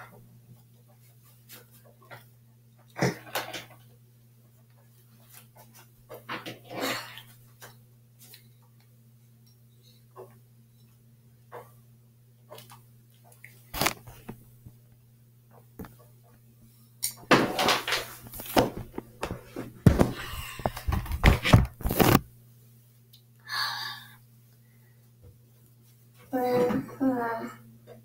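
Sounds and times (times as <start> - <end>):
handling rustling and thumps: 17.2 - 22.3.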